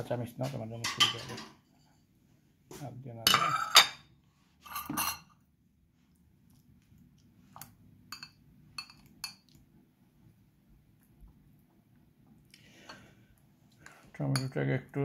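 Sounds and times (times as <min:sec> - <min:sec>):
dishes and fork clattering: 0:00.8 - 0:01.8, 0:03.3 - 0:04.1, 0:04.7 - 0:05.3.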